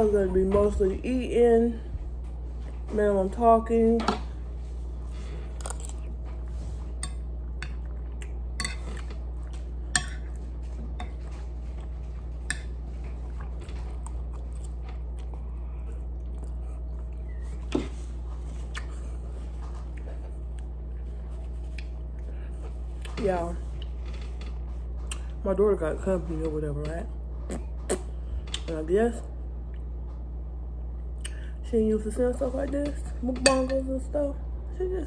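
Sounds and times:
low hum: 0:00.0 - 0:35.0
chewing: 0:05.2 - 0:12.4, 0:13.1 - 0:23.2.

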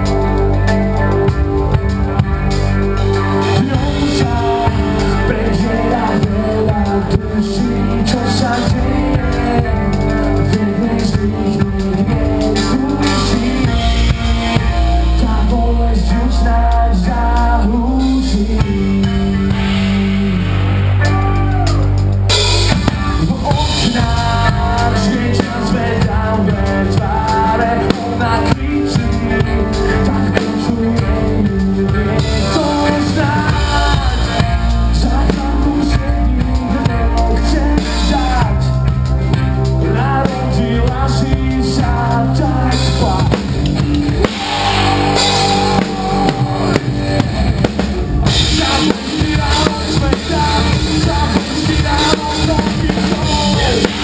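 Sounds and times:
bass guitar: 0:00.0 - 0:54.0
drum kit with cymbals: 0:00.0 - 0:54.0
person singing lead vocal: 0:00.0 - 0:54.0.

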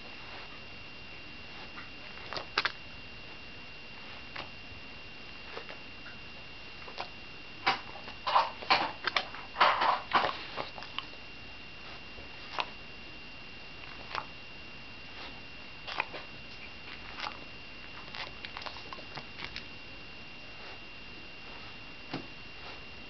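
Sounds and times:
dog chewing and licking: 0:01.5 - 0:02.8, 0:05.4 - 0:05.8, 0:06.8 - 0:11.2, 0:11.8 - 0:12.8, 0:13.8 - 0:14.4, 0:15.1 - 0:19.8.

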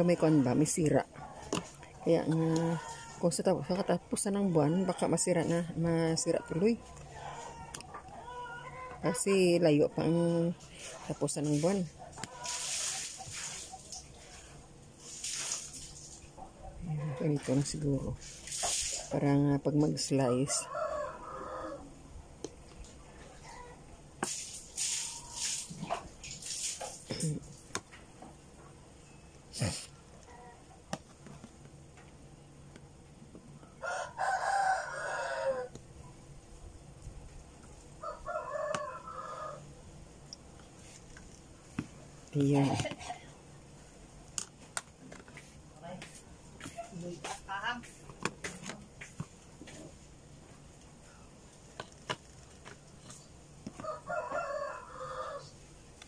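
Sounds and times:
rooster crowing: 0:20.4 - 0:22.0, 0:33.8 - 0:35.8, 0:38.0 - 0:39.7, 0:53.7 - 0:55.6.

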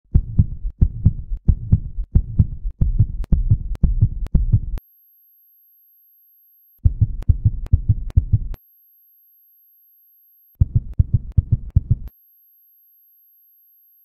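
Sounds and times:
heartbeat thumps: 0:00.1 - 0:04.8, 0:06.8 - 0:08.6, 0:10.6 - 0:12.1.

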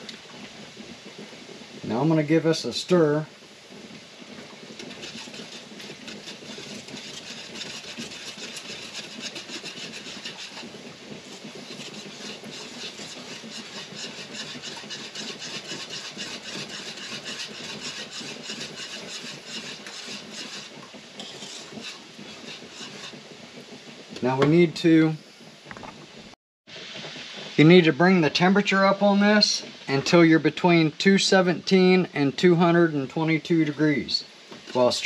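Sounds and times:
metal whisk scraping a pot: 0:04.7 - 0:23.3.

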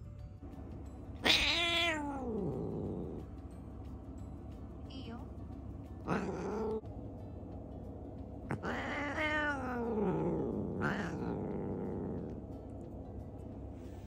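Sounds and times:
cat yowling: 0:01.2 - 0:03.2, 0:06.0 - 0:06.8, 0:08.5 - 0:12.4.

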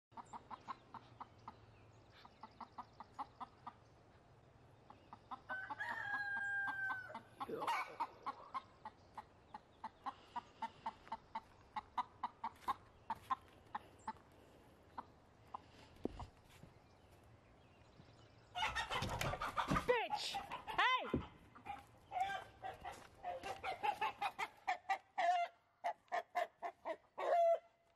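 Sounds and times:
chickens commotion: 0:00.1 - 0:16.4, 0:18.5 - 0:27.7
chickens clucking: 0:00.1 - 0:27.7
rooster crowing: 0:05.5 - 0:07.3.

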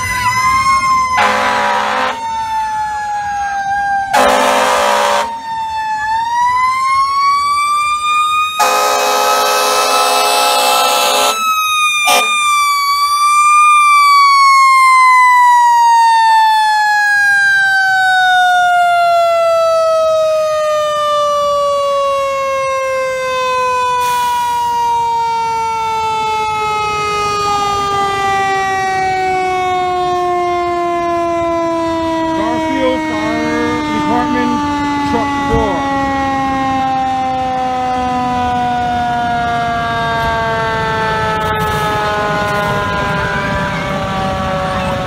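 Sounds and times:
mechanical siren winding down: 0:00.0 - 0:45.0
horn blast: 0:01.2 - 0:02.2, 0:04.1 - 0:05.3, 0:08.6 - 0:11.4, 0:12.0 - 0:12.5.

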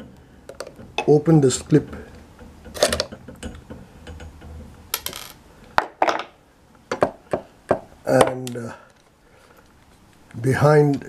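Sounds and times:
tools set down on wooden table: 0:05.0 - 0:06.4.

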